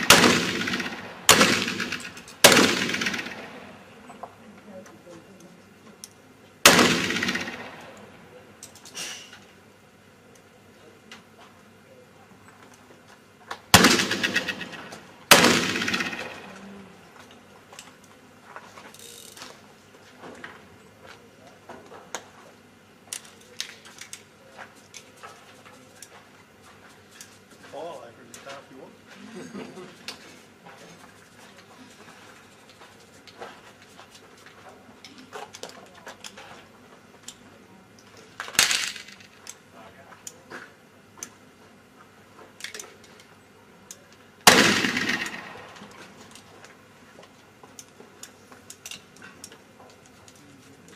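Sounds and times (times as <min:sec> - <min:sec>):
pistol shots echoing: 0:00.0 - 0:03.8, 0:06.6 - 0:08.1, 0:13.8 - 0:16.5, 0:44.5 - 0:45.8
pistols clicking and knocking: 0:42.5 - 0:43.3, 0:47.7 - 0:50.4.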